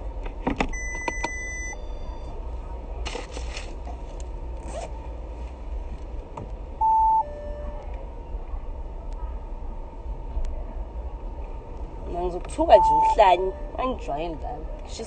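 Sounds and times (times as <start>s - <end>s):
low steady hum: 0.0s - 15.0s
zipper being pulled open: 4.6s - 4.9s.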